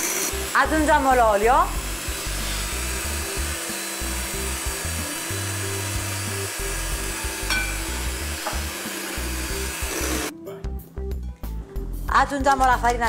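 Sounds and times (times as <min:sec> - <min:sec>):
electric hand mixer running: 0:00.0 - 0:10.3
background music with bass: 0:00.3 - 0:13.0
beater clinking on glass bowl: 0:07.1 - 0:08.9.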